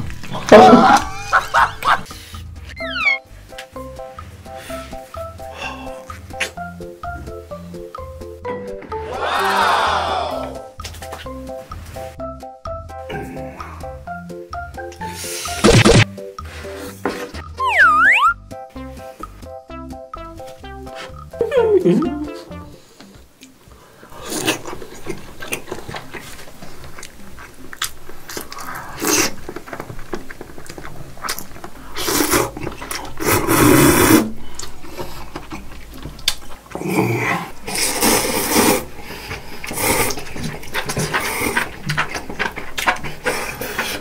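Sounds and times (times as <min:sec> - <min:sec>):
person chewing: 0:23.4 - 0:44.0
person slurping noodles: 0:28.5 - 0:29.4, 0:31.9 - 0:34.5, 0:36.8 - 0:41.7.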